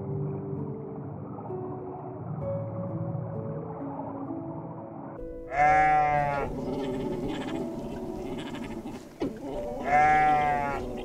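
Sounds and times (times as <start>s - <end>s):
soft background music: 0.0s - 11.0s
goat bleating: 5.5s - 11.0s.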